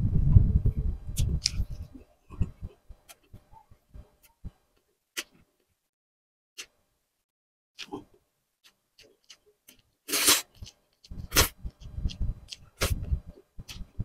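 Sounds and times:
person chewing: 7.8s - 14.0s.

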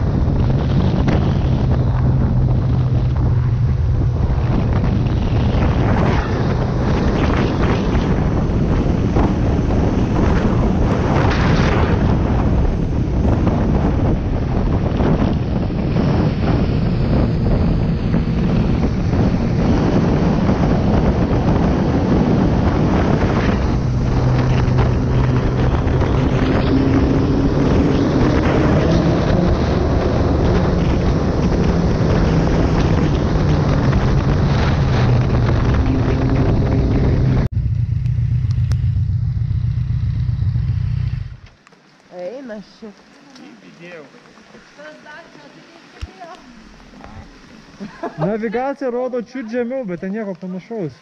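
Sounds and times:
wind noise on microphone: 0.0s - 41.6s
motorcycle engine running: 11.9s - 41.6s.

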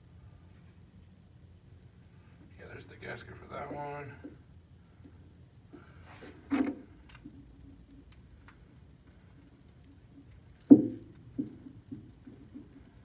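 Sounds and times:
small parts clicking: 6.6s - 11.2s
louder knock: 10.7s - 11.6s.

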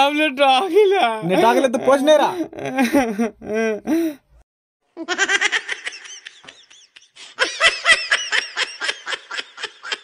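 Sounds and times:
man laughing: 1.2s - 3.9s.

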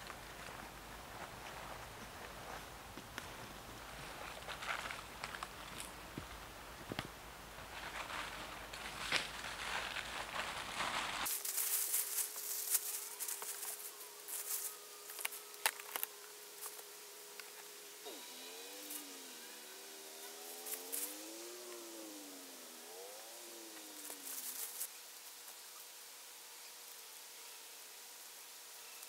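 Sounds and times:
plastic tarp rustling: 7.7s - 16.1s
hollow whistling howl: 17.9s - 24.9s.

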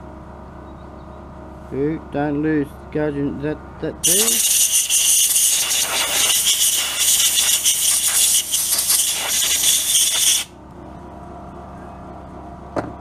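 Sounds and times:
compressed air hissing: 4.0s - 10.5s
steady hum: 4.0s - 11.3s.

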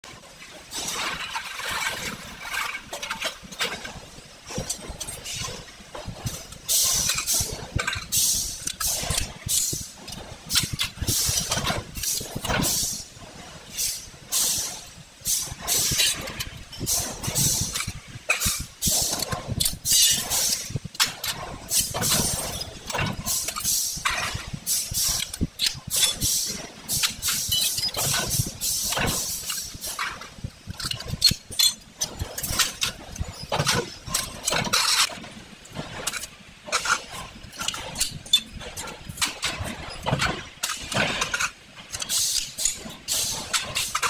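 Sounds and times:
pneumatic cylinders clunking and snapping: 0.1s - 44.0s
air hissing: 6.7s - 11.4s, 12.0s - 16.0s, 16.9s - 20.8s, 23.3s - 24.0s, 24.6s - 30.1s, 42.1s - 43.5s.

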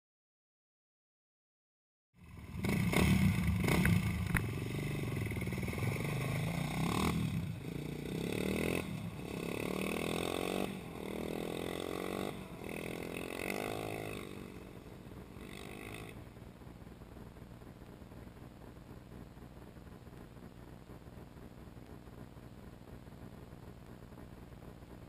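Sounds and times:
quad engine revving and shifting: 2.6s - 4.0s, 5.7s - 14.5s.

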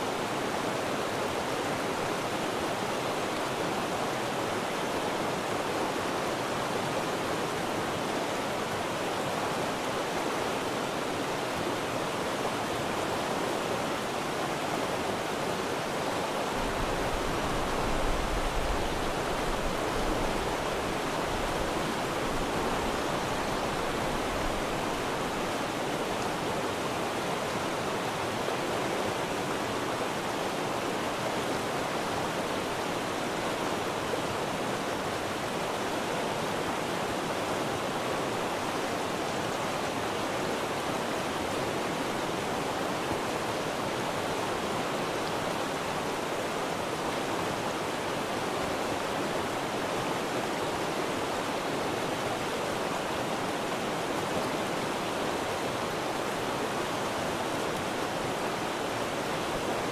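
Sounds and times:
river rushing over rocks: 0.0s - 59.9s.

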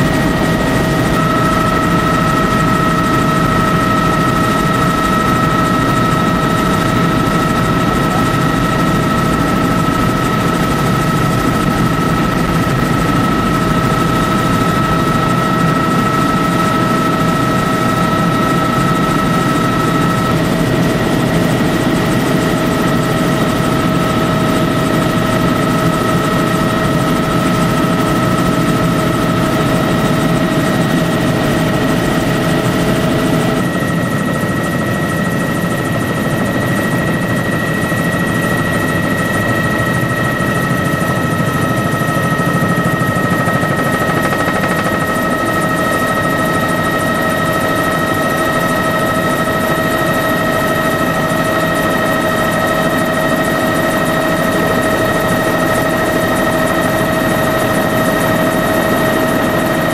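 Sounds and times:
high steady whine: 0.0s - 46.3s
helicopter engine and rotor drone: 0.0s - 59.9s.

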